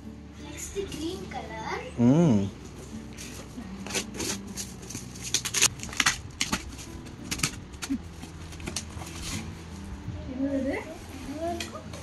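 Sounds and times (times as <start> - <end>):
wrapping paper crackling: 3.1 - 9.5
scissors slitting packing tape: 3.8 - 8.8.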